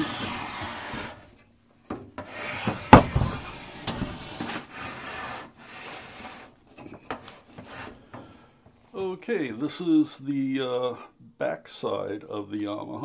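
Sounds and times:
rubbing and scraping: 0.0 - 1.4, 2.2 - 8.5.

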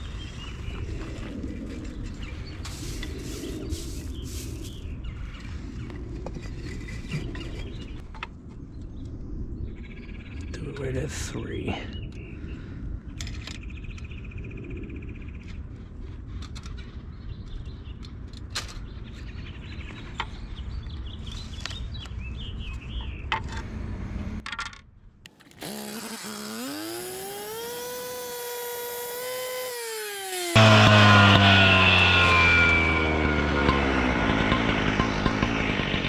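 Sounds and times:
power saw whining: 25.4 - 36.0
saw cutting concrete: 25.6 - 36.0.

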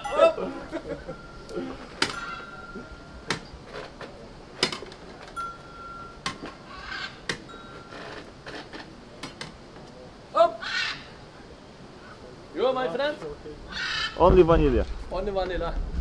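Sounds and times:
high metallic ringing: 0.0 - 3.6, 5.3 - 8.4.

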